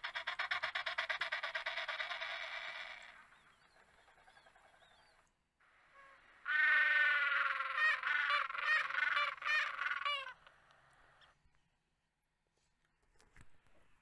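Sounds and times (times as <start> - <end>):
penguin braying call: 6.0 - 10.4.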